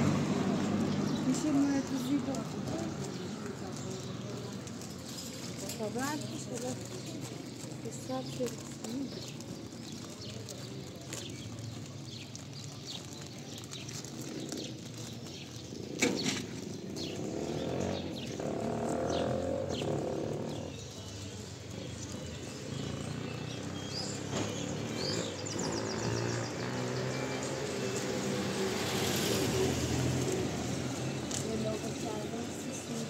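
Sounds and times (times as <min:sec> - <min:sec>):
street background noise: 0:00.0 - 0:33.0
vehicle engine hum: 0:00.0 - 0:33.0
small birds chirping: 0:00.1 - 0:33.0.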